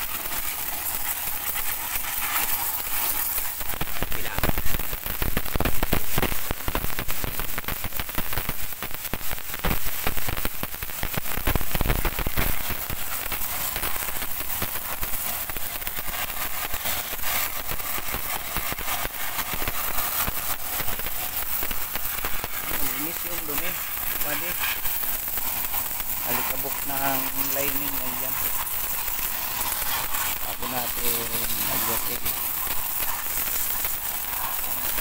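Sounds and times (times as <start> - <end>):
pressure washer jet spattering metal: 11.7 - 35.0.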